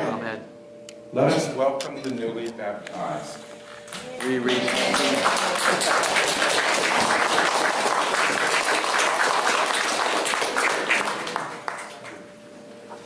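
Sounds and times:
crowd applauding: 4.2 - 12.2.

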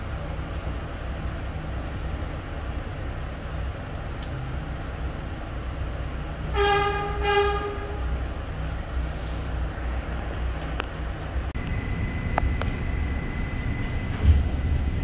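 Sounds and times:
subway train rumbling: 0.0 - 15.0
train horn blasts: 6.5 - 8.2.

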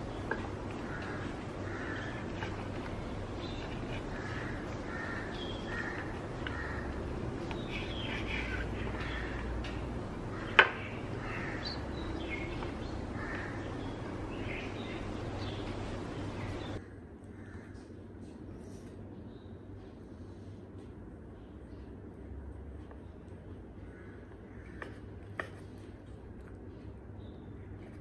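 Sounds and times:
crows cawing: 0.0 - 15.2, 16.0 - 17.9, 23.8 - 25.4.

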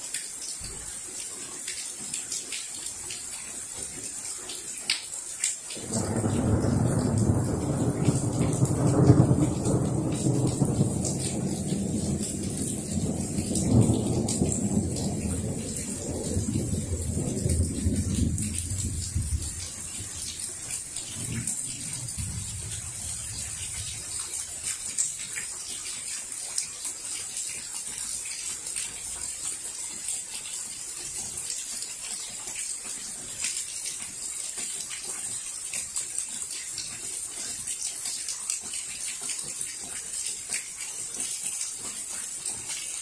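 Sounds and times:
steady rain falling: 0.0 - 43.0
low rumble of thunder: 5.8 - 24.4.

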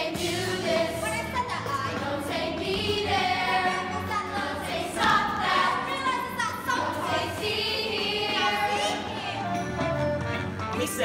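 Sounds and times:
children's chorus singing: 0.0 - 9.5
instrumental backing track: 0.0 - 11.0.

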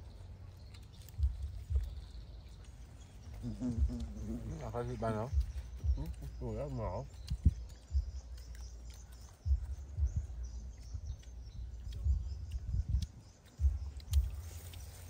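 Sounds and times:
low rumbles and thumps: 0.0 - 15.0
sharp clicks: 5.3 - 15.0.

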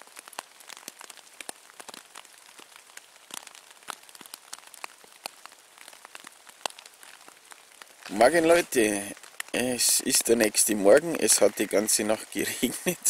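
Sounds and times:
faint steady hiss: 0.0 - 13.0
raindrops tapping on tarp: 0.0 - 13.0.

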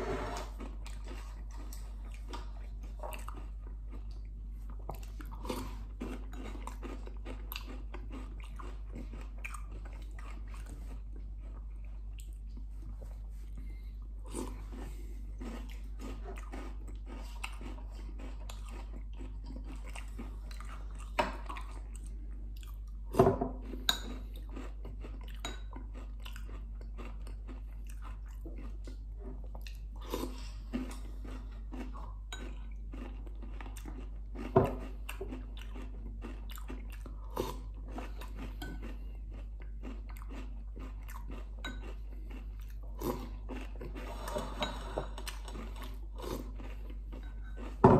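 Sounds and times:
chewing and crunching food: 0.0 - 47.9.

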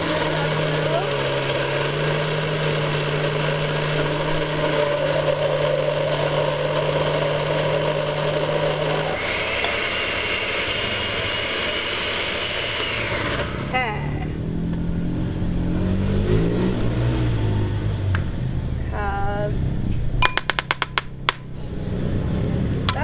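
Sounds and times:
blender motor running: 0.0 - 14.3.

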